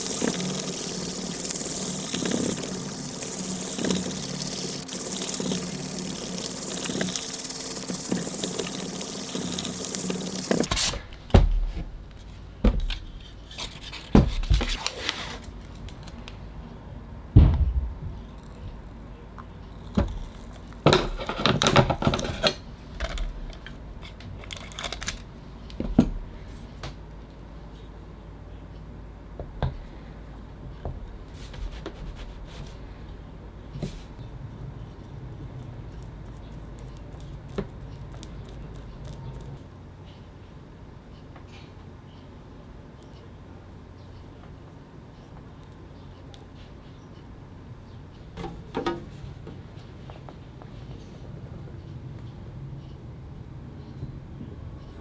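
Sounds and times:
wet sanding scratchy hiss: 0:00.0 - 0:10.7.

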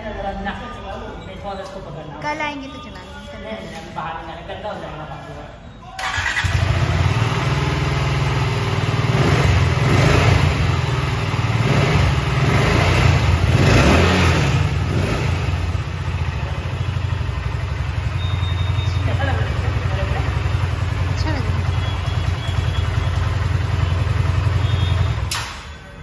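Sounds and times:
motorcycle engine revving and idling: 0:06.0 - 0:25.7.

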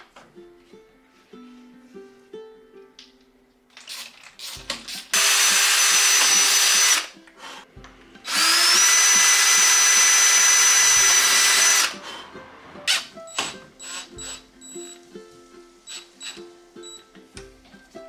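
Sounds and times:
cordless drill whining: 0:03.8 - 0:07.1, 0:08.3 - 0:12.0, 0:12.9 - 0:14.4, 0:15.9 - 0:16.4.

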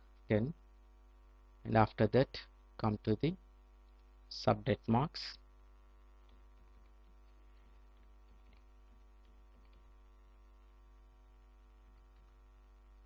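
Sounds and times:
electrical mains hum: 0:00.0 - 0:13.0
faint clicks: 0:03.8 - 0:04.2, 0:06.2 - 0:10.0.

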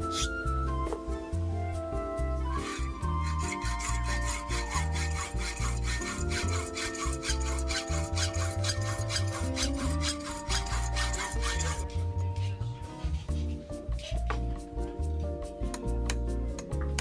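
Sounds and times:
background music with bass: 0:00.0 - 0:17.0
hand file rasping: 0:02.4 - 0:12.6.

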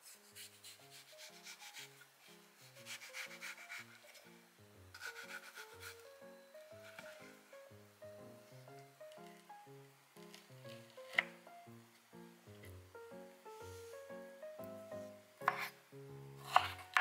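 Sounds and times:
knife sawing through melon: 0:00.0 - 0:02.0, 0:02.8 - 0:04.0, 0:05.0 - 0:06.0
quiet background music: 0:00.0 - 0:17.0.

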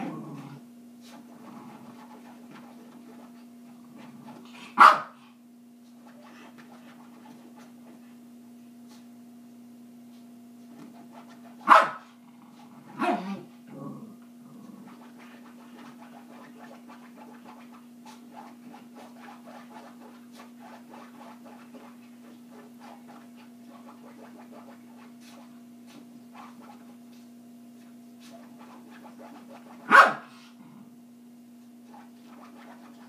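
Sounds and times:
steady low hum: 0:00.0 - 0:33.0
dog barking sharply: 0:04.8 - 0:05.2, 0:11.6 - 0:12.1, 0:29.9 - 0:30.4
dog yipping: 0:29.9 - 0:30.3.

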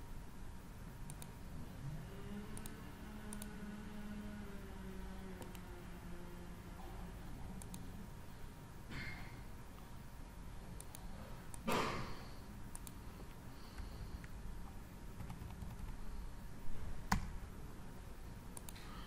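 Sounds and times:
computer mouse clicks: 0:01.1 - 0:01.4, 0:02.5 - 0:03.6, 0:05.4 - 0:05.7, 0:07.6 - 0:07.9, 0:10.8 - 0:11.7, 0:12.7 - 0:13.0, 0:18.5 - 0:18.9.

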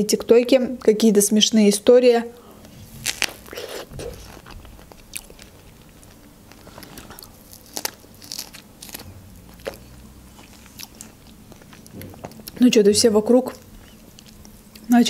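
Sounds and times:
person chewing: 0:02.4 - 0:12.6, 0:13.5 - 0:15.0.

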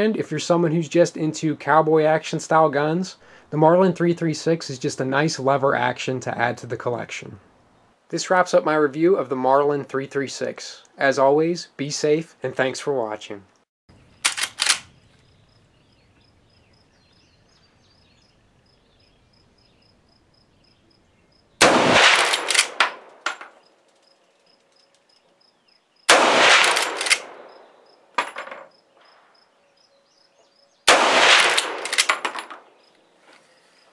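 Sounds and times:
metallic clacking of rifle lever: 0:14.2 - 0:14.9, 0:22.2 - 0:25.2, 0:26.6 - 0:27.3, 0:31.4 - 0:32.6
rifle shots ringing out: 0:21.6 - 0:23.6, 0:26.1 - 0:28.4, 0:30.9 - 0:32.6.

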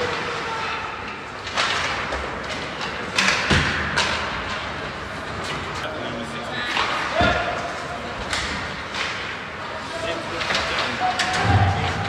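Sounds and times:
clacks of hockey sticks and puck: 0:01.2 - 0:05.6, 0:06.7 - 0:09.4.

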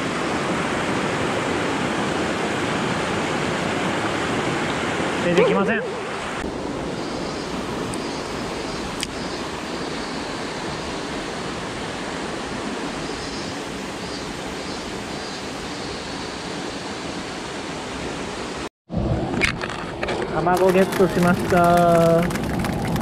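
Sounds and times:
stream rushing over rocks: 0:00.0 - 0:07.0.

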